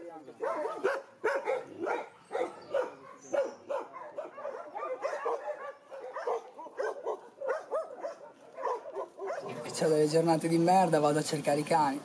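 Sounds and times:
dogs barking and yelping: 0:00.3 - 0:09.6.

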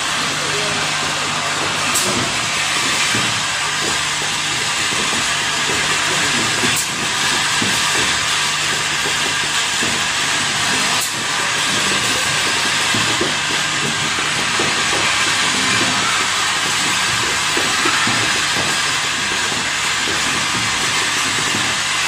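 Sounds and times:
low machine hum: 0:00.0 - 0:22.0.

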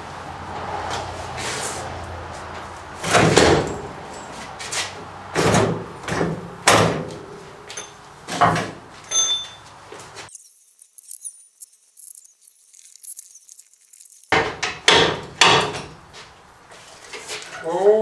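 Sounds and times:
metal clunks and knocks: 0:14.4 - 0:16.0.

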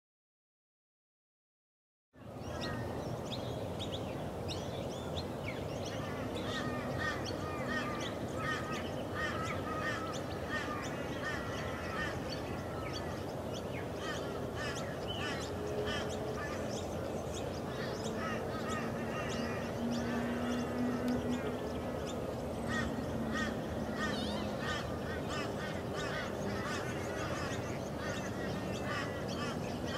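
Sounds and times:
steady background hiss: 0:02.2 - 0:29.9
birds chirping and whistling: 0:02.5 - 0:29.9
low steady tones: 0:02.8 - 0:29.9.

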